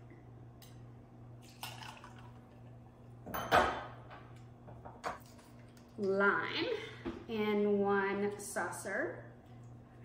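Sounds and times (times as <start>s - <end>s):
liquid pouring into shaker: 1.4s - 2.7s.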